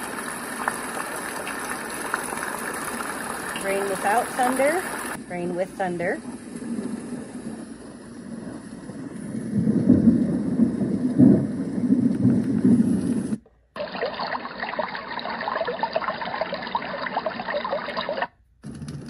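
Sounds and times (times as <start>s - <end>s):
rain hiss from speaker: 0.0s - 14.0s
thunder rumble: 6.1s - 13.4s.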